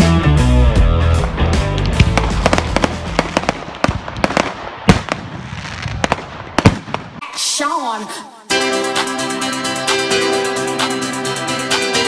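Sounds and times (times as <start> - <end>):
rock music: 0.0 - 3.5, 8.5 - 12.0
fireworks cracking and popping: 1.7 - 7.2.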